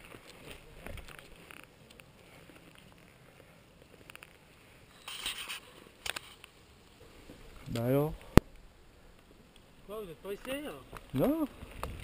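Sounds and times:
bike rolling over stony trail: 0.0s - 4.5s
bike rattling: 0.0s - 8.1s.

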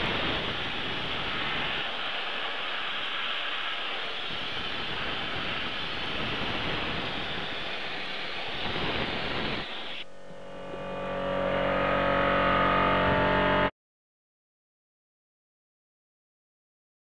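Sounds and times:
soda blaster hissing: 0.0s - 13.6s
multi-pitched hum: 8.6s - 13.7s.

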